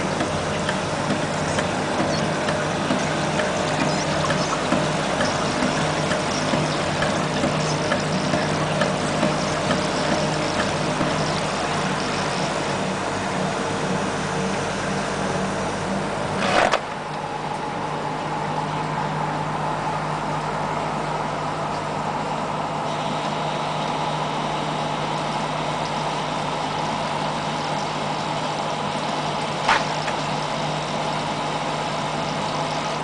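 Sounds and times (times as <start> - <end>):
rotating brush rollers churning: 0.0 - 13.2
machine motor hum: 0.0 - 33.0.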